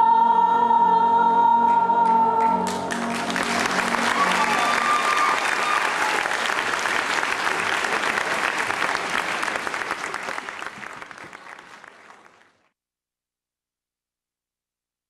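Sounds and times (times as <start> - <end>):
audience applauding: 2.0 - 12.7.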